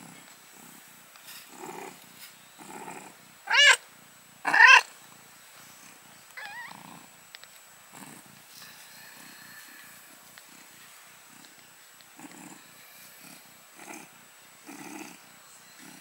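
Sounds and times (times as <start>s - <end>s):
cat purring: 0.0s - 16.0s
cat crying: 3.5s - 3.8s, 4.5s - 4.9s, 6.4s - 6.8s.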